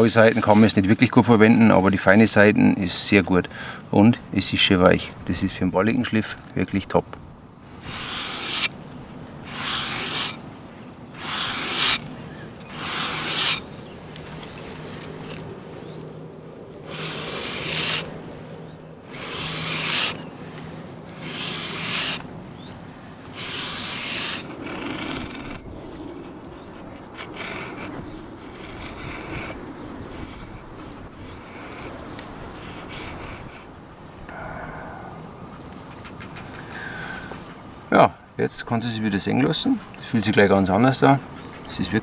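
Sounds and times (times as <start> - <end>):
knife scraping on nail file: 7.9 - 8.8, 9.5 - 10.4, 11.2 - 12.0, 12.7 - 13.6, 16.9 - 18.1, 19.1 - 20.2, 21.2 - 22.2, 23.4 - 25.6, 27.2 - 27.9.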